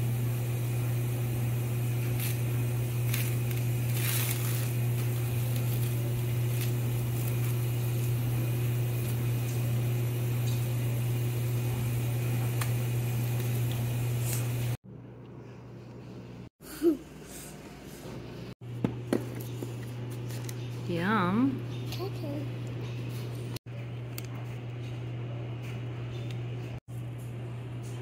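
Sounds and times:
low machine hum: 0:00.0 - 0:28.0
cookie rustling in powdered sugar: 0:01.8 - 0:09.4.

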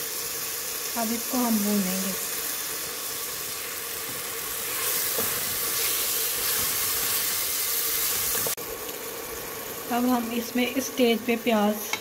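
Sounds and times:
liver sizzling in oil: 0:00.0 - 0:12.0
wooden spatula stirring in pot: 0:04.0 - 0:08.6.

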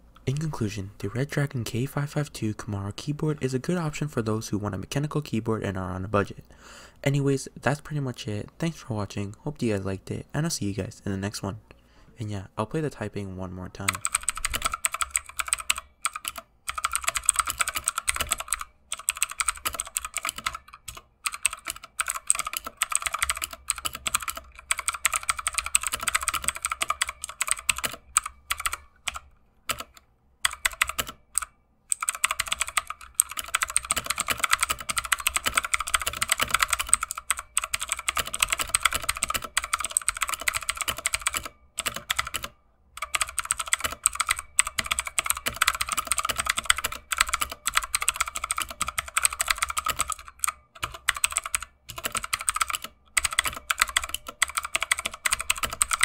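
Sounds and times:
fast typing on mechanical keyboard: 0:13.8 - 0:56.0.

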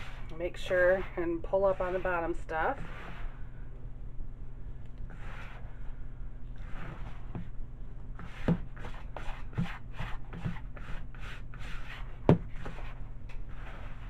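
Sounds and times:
gritty scrunching rubs: 0:00.0 - 0:03.3.

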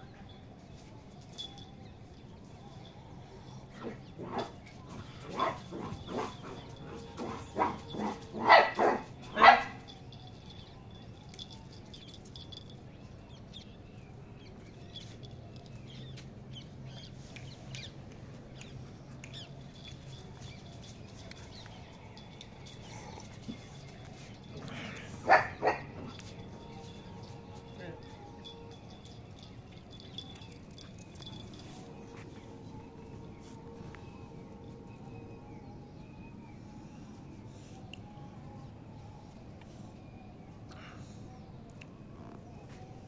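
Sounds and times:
puppy barking: 0:05.3 - 0:09.8, 0:25.2 - 0:26.1.

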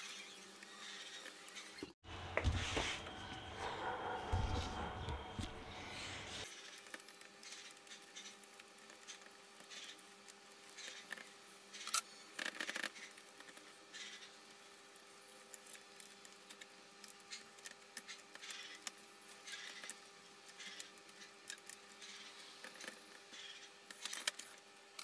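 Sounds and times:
faint steady hum: 0:02.1 - 0:06.5.

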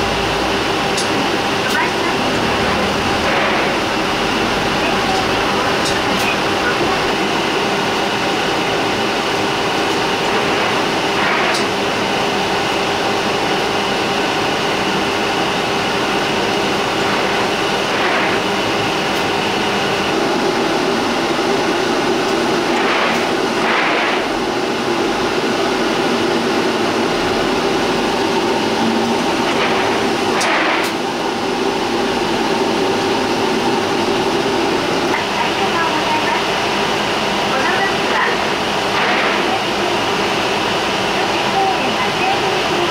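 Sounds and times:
bus cabin hum: 0:00.0 - 0:42.9
high whine: 0:16.0 - 0:35.2.

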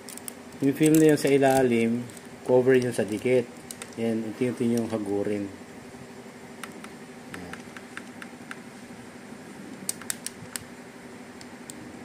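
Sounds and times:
plastic film ticks and crackles: 0:00.0 - 0:05.1, 0:09.8 - 0:10.7
steady low hum: 0:00.0 - 0:12.0.

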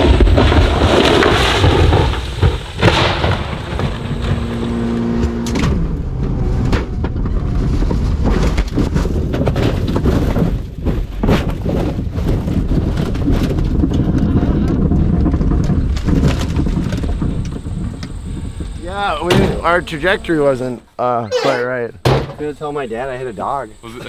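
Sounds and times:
car crash impact and flying dirt: 0:00.0 - 0:20.5
rattling and rumbling inside car: 0:03.5 - 0:20.5
sharp bang: 0:19.0 - 0:20.8.

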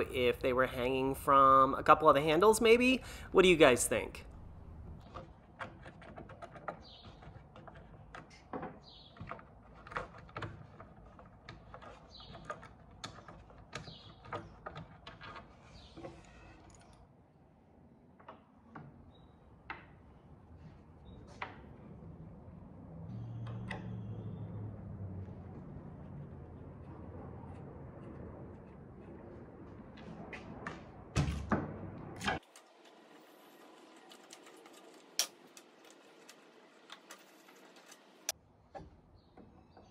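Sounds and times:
low hum: 0:03.0 - 0:05.0.

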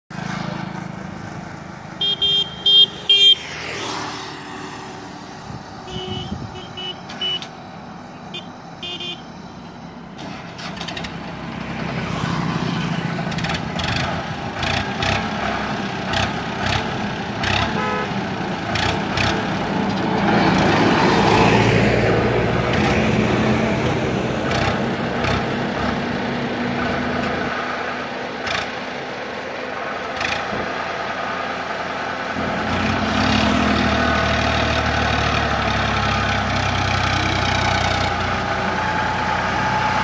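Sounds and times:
tractor diesel engine running: 0:00.1 - 0:03.4, 0:04.5 - 0:40.0
horn toots: 0:02.0 - 0:03.5, 0:05.8 - 0:07.5, 0:08.3 - 0:09.3, 0:17.5 - 0:18.2.

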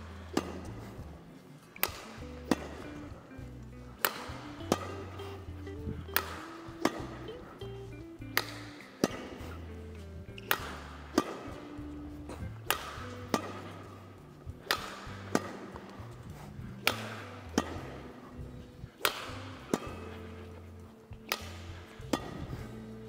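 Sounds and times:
rackets hitting shuttlecock: 0:00.0 - 0:23.0.

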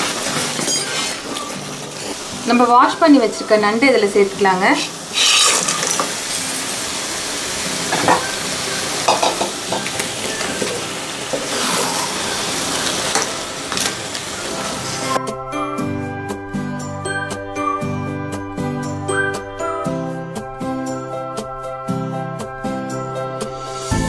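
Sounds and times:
masala sizzling in a pan: 0:00.0 - 0:15.2
wooden spatula scraping a pan: 0:09.2 - 0:13.9.

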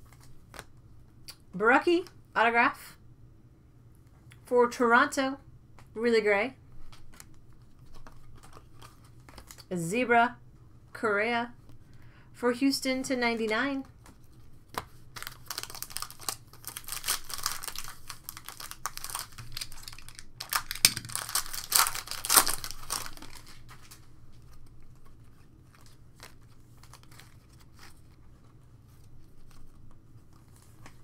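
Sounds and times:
foil wrapper tearing and crinkling: 0:15.1 - 0:24.0, 0:25.7 - 0:28.1.

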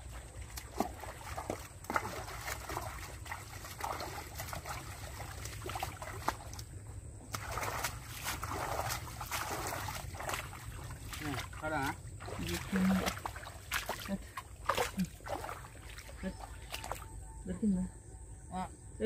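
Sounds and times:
mud and water squelching: 0:00.0 - 0:17.3.

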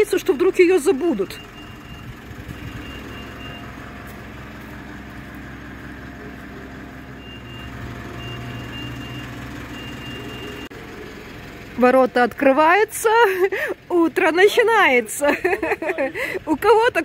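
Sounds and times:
car engine idling: 0:00.0 - 0:17.0
electronic warning beeps: 0:00.2 - 0:03.8, 0:07.2 - 0:10.7.

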